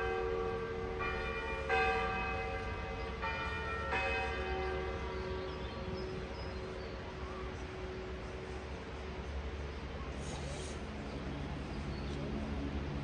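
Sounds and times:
church bells ringing: 0.0s - 9.4s.

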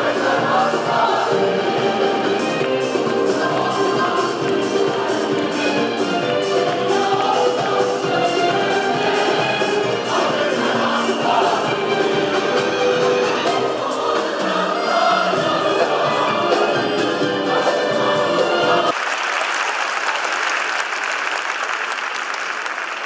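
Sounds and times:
mixed choir singing: 0.0s - 18.9s
audience applauding: 2.4s - 10.2s, 18.9s - 23.0s.

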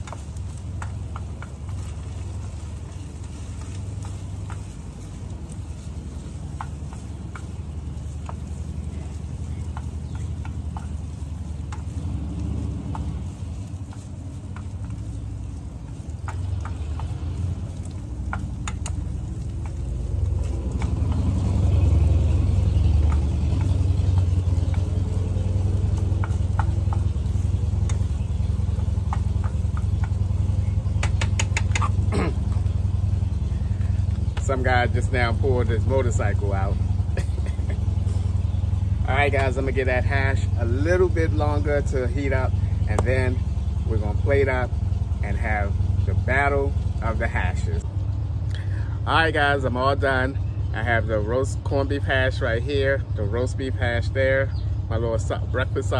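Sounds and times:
motorcycle engine rumble: 0.0s - 55.9s.

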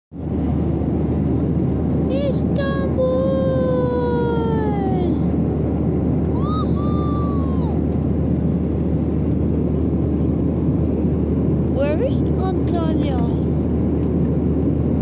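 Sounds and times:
airliner engine drone: 0.2s - 15.0s.

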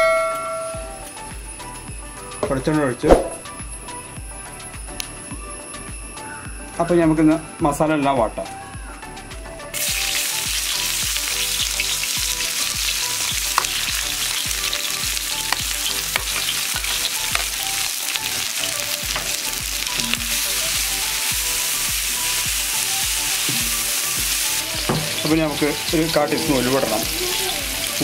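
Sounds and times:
vegetables sizzling in oil: 9.8s - 28.0s.

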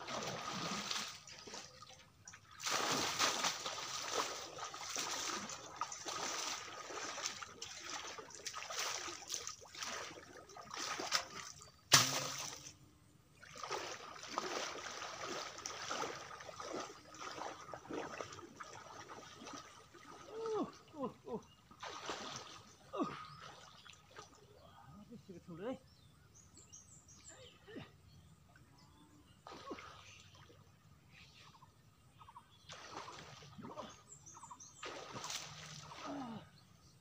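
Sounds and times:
water splashing and sloshing: 0.0s - 24.6s, 29.3s - 30.8s, 32.6s - 36.5s
loud sharp splash: 2.6s - 9.2s, 9.8s - 12.7s, 21.8s - 22.6s, 34.8s - 36.2s.

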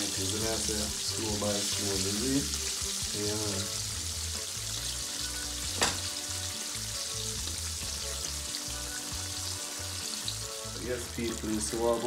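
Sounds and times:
fish frying in hot oil: 0.0s - 12.0s.

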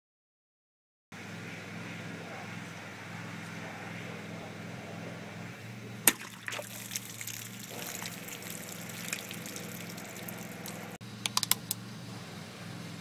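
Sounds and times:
steady low hum: 1.2s - 13.0s
knife slashing plastic bottle: 6.1s - 7.0s
water splashing and trickling: 6.1s - 11.0s.

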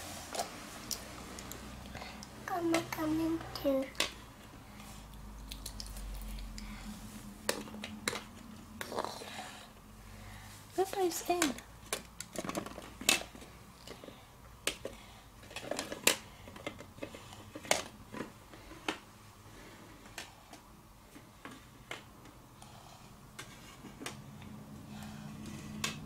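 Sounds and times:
hard toys clicking on wooden floor: 11.2s - 19.0s.

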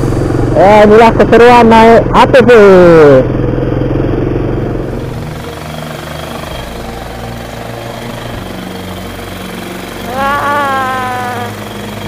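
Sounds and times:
quad bike engine running: 0.0s - 12.0s
high voice calling out: 10.0s - 11.6s.

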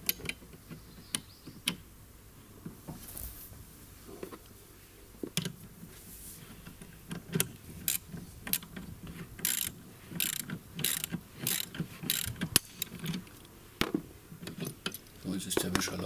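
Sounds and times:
ratchet wrench clicking: 9.4s - 12.4s.

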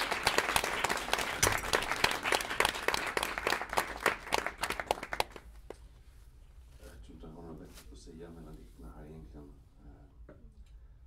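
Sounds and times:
small audience applauding: 0.0s - 5.8s.

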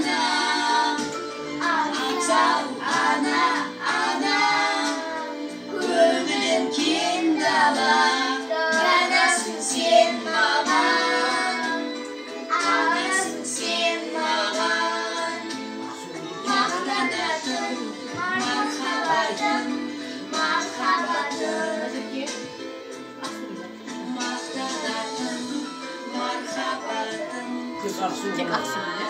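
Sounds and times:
girl singing along: 0.0s - 11.9s, 16.5s - 22.3s
backing music: 0.0s - 29.0s.

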